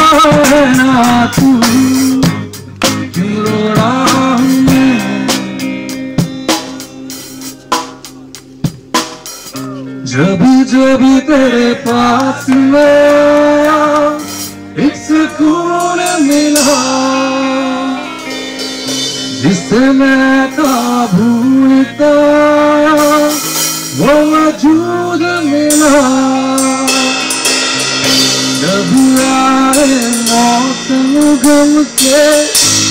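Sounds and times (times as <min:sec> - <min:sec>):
man singing long held notes: 0:00.0 - 0:08.3, 0:09.6 - 0:32.9
drum kit: 0:00.0 - 0:32.9
electric guitar: 0:00.0 - 0:32.9.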